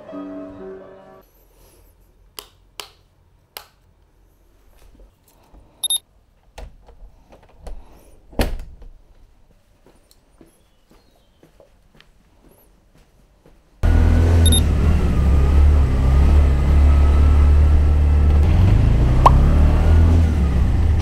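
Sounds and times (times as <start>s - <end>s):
double electronic beep: 14.4s - 14.6s.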